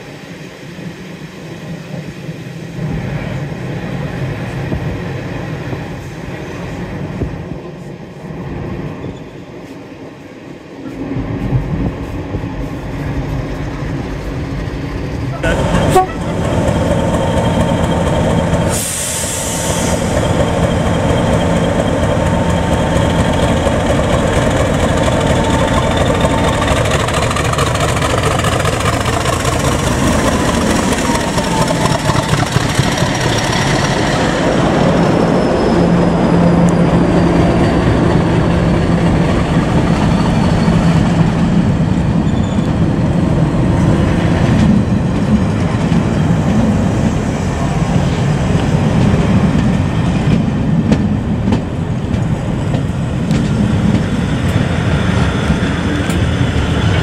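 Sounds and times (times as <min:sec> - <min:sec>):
diesel locomotive engine whine: 0:00.0 - 0:57.0
train wheel clatter: 0:10.9 - 0:35.4, 0:36.4 - 0:47.4, 0:48.0 - 0:57.0.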